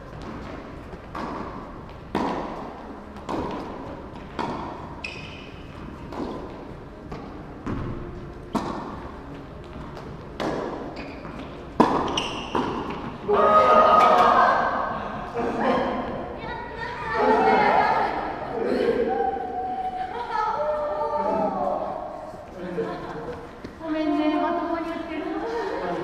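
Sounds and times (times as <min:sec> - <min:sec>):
tennis balls bouncing on court: 0:00.0 - 0:13.3
tennis balls struck by rackets: 0:00.1 - 0:13.3.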